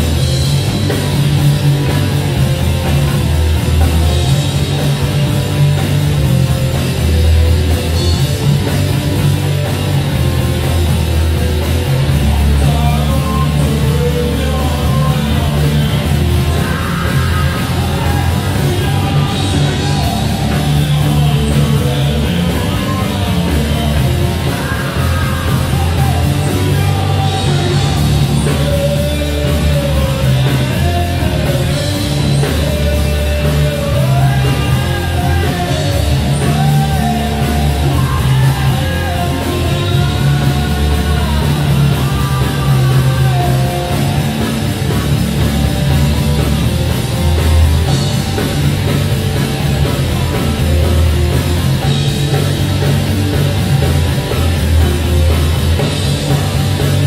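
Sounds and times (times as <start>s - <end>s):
live rock band playing: 0.0s - 57.0s.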